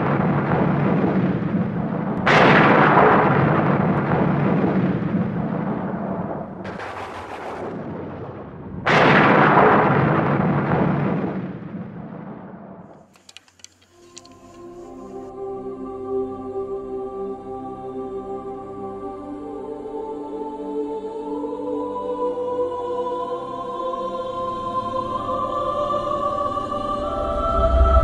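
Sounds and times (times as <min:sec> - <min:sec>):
hissing thunder crack: 0:00.0 - 0:12.8
thunder cracks rolling: 0:00.0 - 0:12.9.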